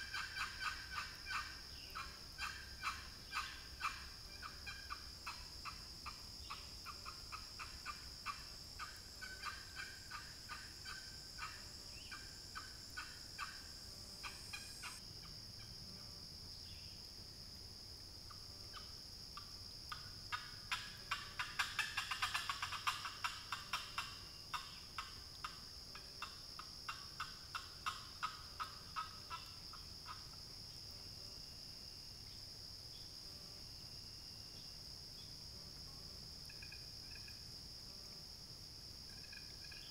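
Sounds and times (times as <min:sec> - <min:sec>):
turkey call yelps: 0:00.0 - 0:05.0, 0:20.3 - 0:24.7
high insect drone: 0:00.0 - 0:39.9.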